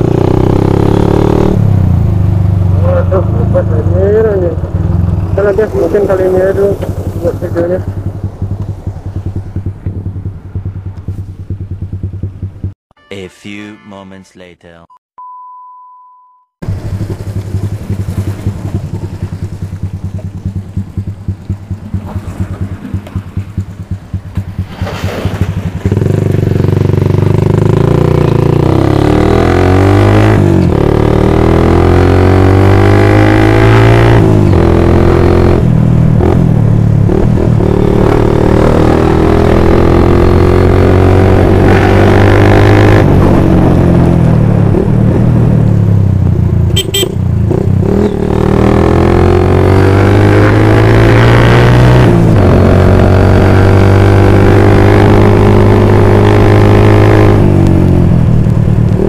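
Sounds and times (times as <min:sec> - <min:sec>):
motorcycle engine accelerating: 0:00.0 - 0:12.8, 0:16.6 - 0:59.0
high beep: 0:13.0 - 0:16.6.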